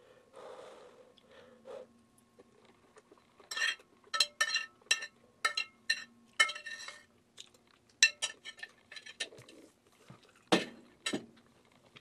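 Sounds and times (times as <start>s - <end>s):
spoon clinking on ceramic plate: 3.5s - 7.0s.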